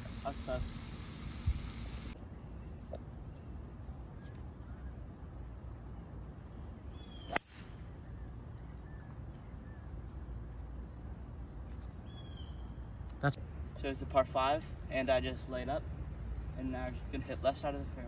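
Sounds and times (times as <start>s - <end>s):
golf driver striking ball: 7.3s - 7.7s.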